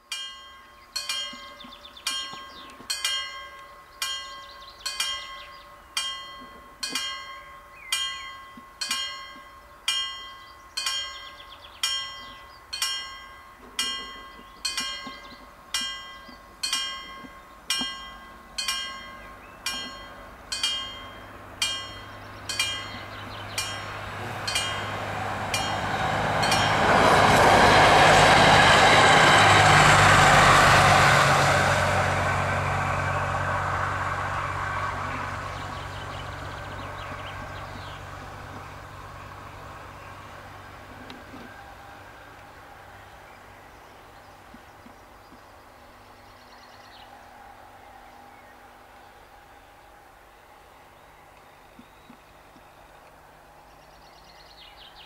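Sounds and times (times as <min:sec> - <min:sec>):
diesel train engine drone: 0:00.0 - 0:55.0
level crossing bell ringing: 0:00.1 - 0:28.2.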